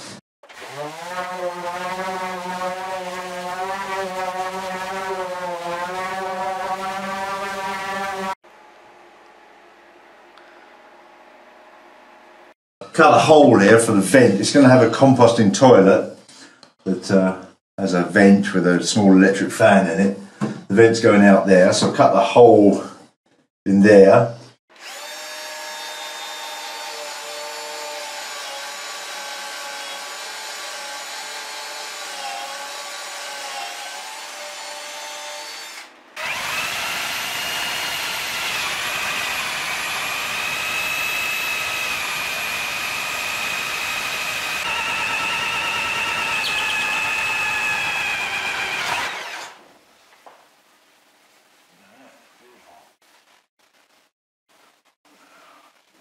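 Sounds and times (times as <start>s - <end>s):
power drill cutting plywood: 0.4s - 8.4s, 24.7s - 49.6s.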